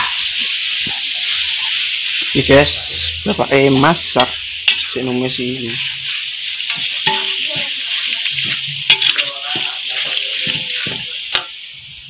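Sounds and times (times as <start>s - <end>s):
spice paste sizzling in wok: 0.0s - 12.0s
metal spatula scraping wok: 1.2s - 11.6s
spatula clacking against wok: 6.6s - 11.6s.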